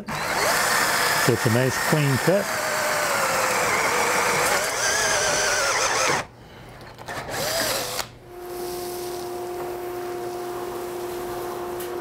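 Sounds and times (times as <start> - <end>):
cordless drill boring: 0.0 - 6.3, 7.3 - 8.1.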